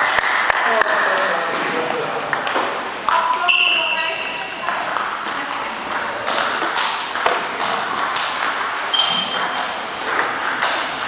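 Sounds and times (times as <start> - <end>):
table tennis balls clicking: 0.0 - 11.0
short high squeak: 8.9 - 9.4.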